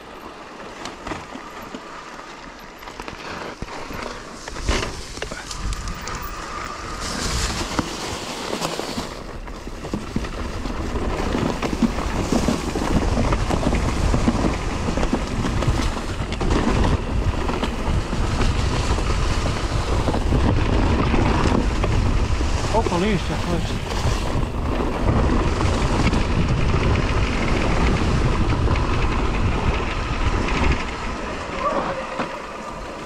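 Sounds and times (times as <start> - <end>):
bike tyres rumbling on trail: 0.0 - 33.0
bike rattling and knocking: 0.2 - 33.0
wind on microphone: 4.4 - 8.0, 9.1 - 33.0.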